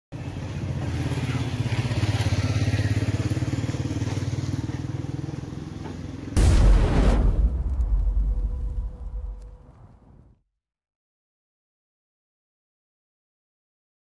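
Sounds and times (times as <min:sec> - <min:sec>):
rushing noise with deep boom: 0:06.4 - 0:10.4.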